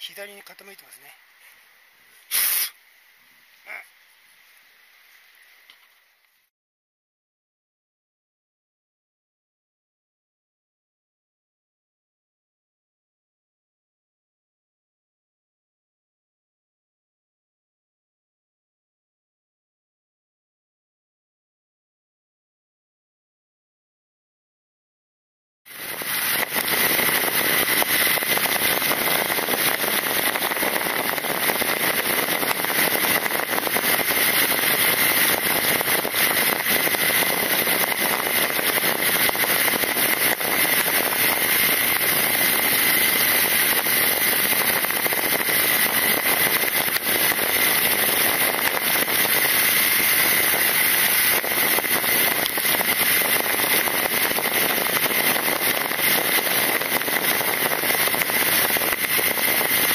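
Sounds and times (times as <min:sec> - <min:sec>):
motorcycle engine: 0:25.7 - 0:59.9
wind rushing over microphone: 0:25.7 - 0:59.9.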